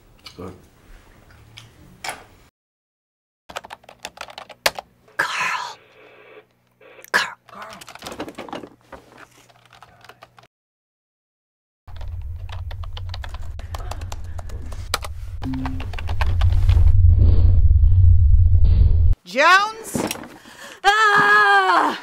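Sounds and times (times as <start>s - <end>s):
keyboard typing clicks: 12.0s - 16.3s.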